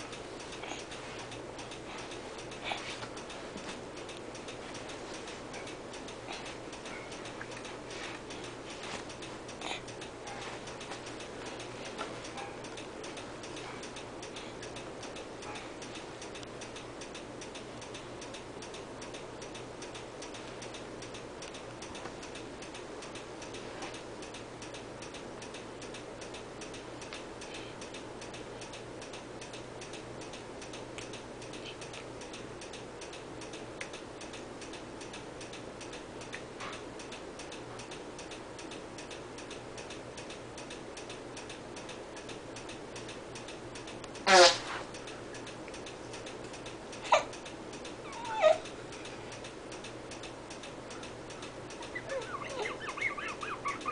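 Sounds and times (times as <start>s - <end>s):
low steady hum: 0.0s - 53.9s
steady even ticking: 0.0s - 53.9s.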